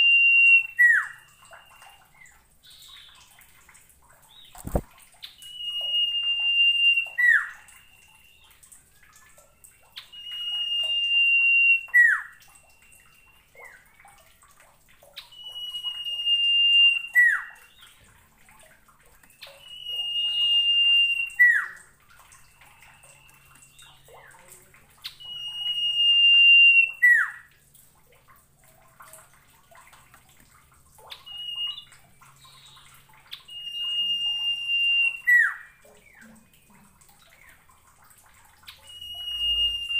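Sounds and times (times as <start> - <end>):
bird whistling song: 0.0 - 3.3, 4.3 - 8.7, 9.3 - 13.9, 15.2 - 18.1, 19.2 - 24.2, 25.0 - 27.5, 31.1 - 36.7, 38.6 - 39.9.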